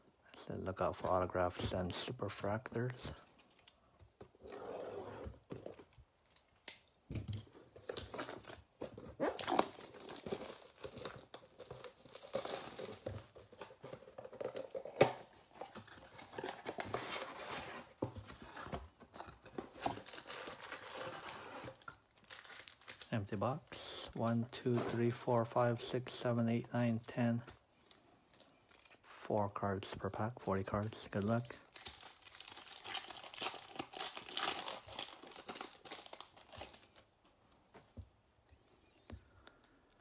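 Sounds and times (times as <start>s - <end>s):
plastic shrink-wrap tearing: 31.4s - 36.9s.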